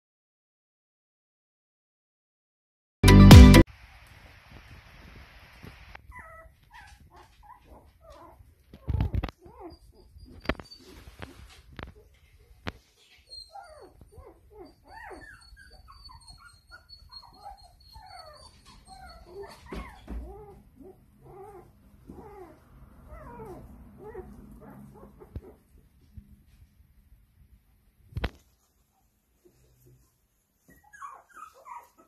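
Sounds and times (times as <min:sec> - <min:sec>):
puppies whimpering and squealing: 0:06.1 - 0:25.6, 0:30.6 - 0:32.0.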